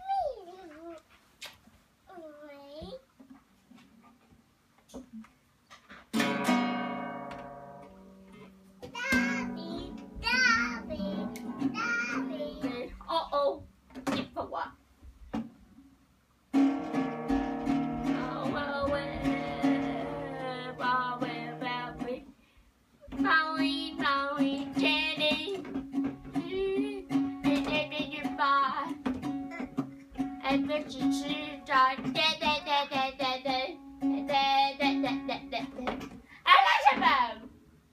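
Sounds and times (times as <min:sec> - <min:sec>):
acoustic guitar strumming: 0:06.1 - 0:12.9, 0:16.5 - 0:22.2, 0:23.2 - 0:33.0.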